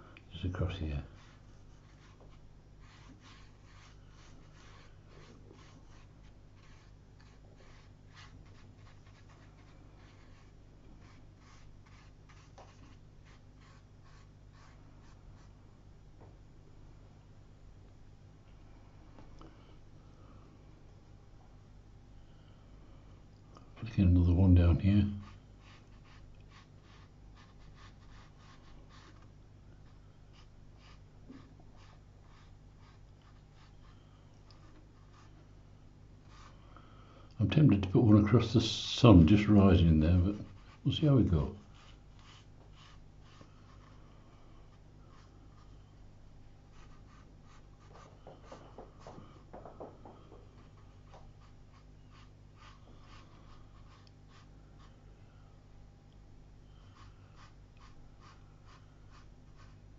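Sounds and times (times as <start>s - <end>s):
low steady hum: 0.0s - 59.9s
brush strokes on paper: 0.5s - 15.6s, 24.1s - 35.5s, 36.3s - 36.7s, 38.2s - 45.9s, 46.7s - 49.9s, 50.5s - 55.0s, 56.7s - 59.9s.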